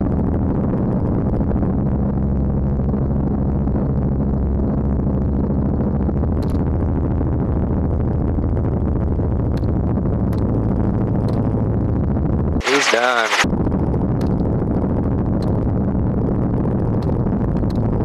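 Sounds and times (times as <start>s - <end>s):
helicopter engine and rotor: 12.6s - 13.4s.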